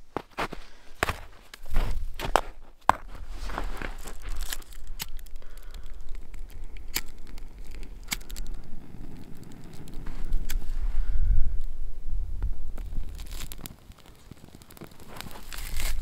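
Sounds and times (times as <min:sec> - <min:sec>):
dry grass crinkling: 0:00.0 - 0:10.9, 0:12.4 - 0:16.0
rocks clicking: 0:01.0 - 0:10.6, 0:12.4 - 0:16.0.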